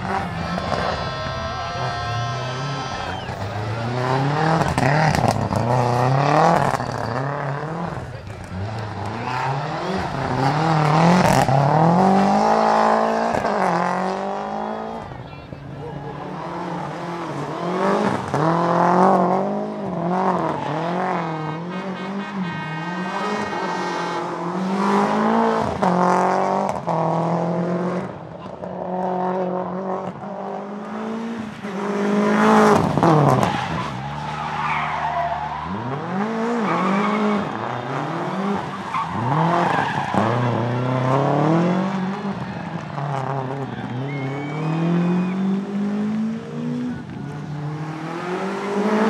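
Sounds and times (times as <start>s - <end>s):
rally car engine revving: 0.0s - 49.0s
tyres squealing: 0.1s - 7.6s, 33.2s - 41.0s.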